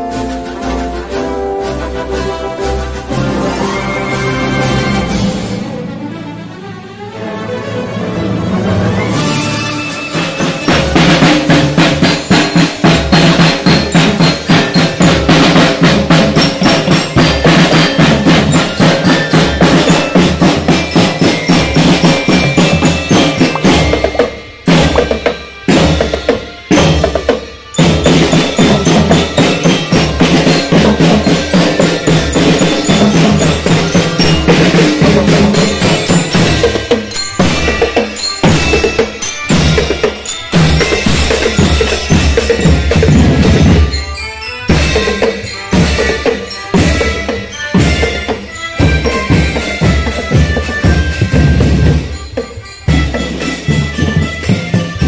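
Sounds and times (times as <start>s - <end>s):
snare drums: 0.0s - 5.6s, 9.0s - 55.0s
bell lyre melody: 9.8s - 55.0s
marching bass drums: 10.4s - 44.0s, 44.7s - 52.3s.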